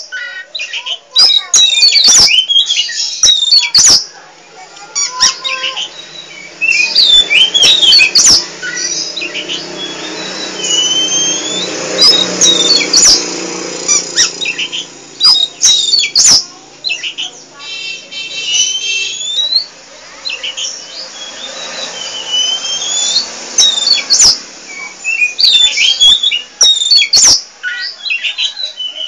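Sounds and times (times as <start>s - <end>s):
bird calling harsh notes: 0.0s - 29.0s
bird whistles sliding in pitch: 5.0s - 13.2s, 20.4s - 29.0s.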